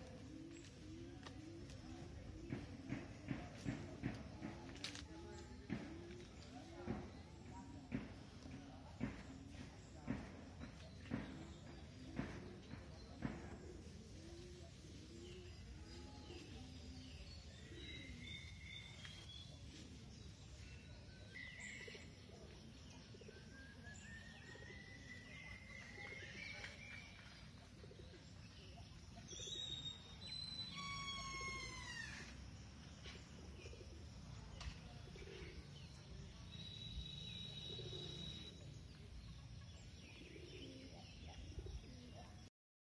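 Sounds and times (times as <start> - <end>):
birds calling and singing: 0.0 - 42.5.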